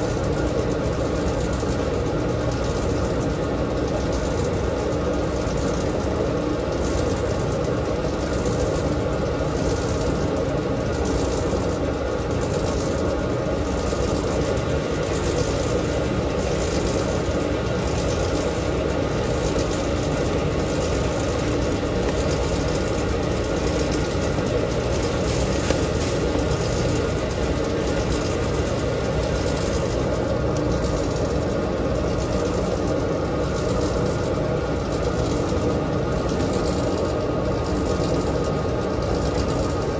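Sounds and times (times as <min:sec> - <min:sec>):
washing machine humming: 0:00.0 - 0:39.9.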